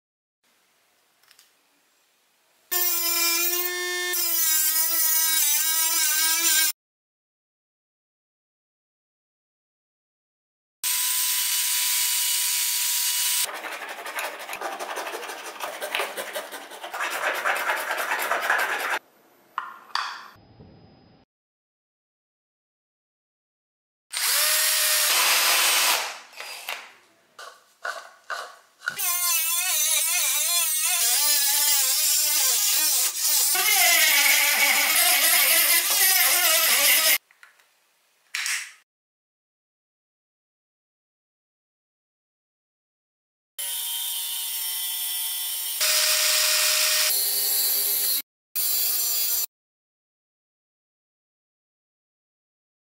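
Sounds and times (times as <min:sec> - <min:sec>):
electric drill grinding plastic: 0:10.9 - 0:19.0, 0:24.1 - 0:26.6, 0:28.9 - 0:37.2
file rasping plastic: 0:13.4 - 0:19.0, 0:27.4 - 0:37.2.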